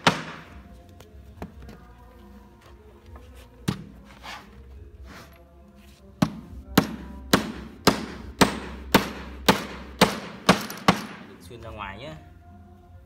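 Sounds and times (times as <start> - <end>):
hammer driving nails into wood: 0.0 - 0.5, 6.2 - 11.3.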